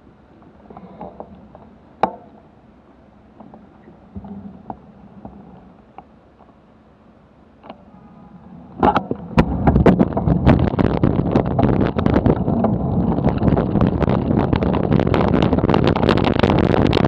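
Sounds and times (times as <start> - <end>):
bicycle road rumble and rattling: 7.6 - 17.0
wind buffeting: 8.0 - 17.0.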